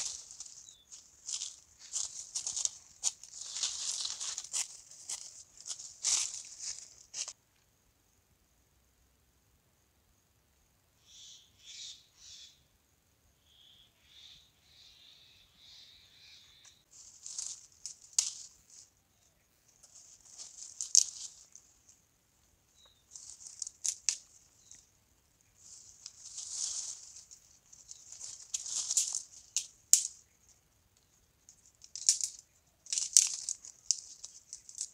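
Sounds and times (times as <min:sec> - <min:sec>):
twig fire crackling and snapping: 0:00.0 - 0:07.3, 0:16.9 - 0:18.8, 0:19.9 - 0:21.6, 0:23.1 - 0:24.8, 0:25.6 - 0:30.3, 0:31.5 - 0:34.9.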